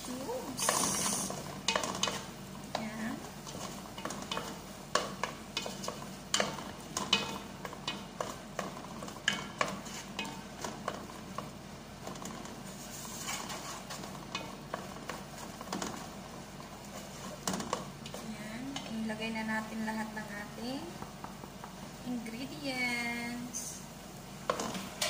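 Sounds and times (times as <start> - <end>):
tomatoes sizzling: 0.0 - 25.0
wooden spoon scraping a metal pot: 0.6 - 19.0.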